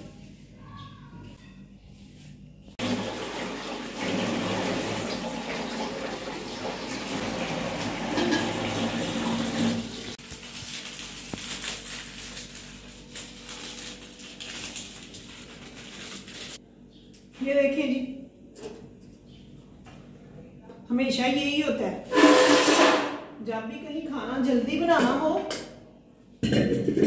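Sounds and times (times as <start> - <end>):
tap water running into colander: 2.8 - 10.2.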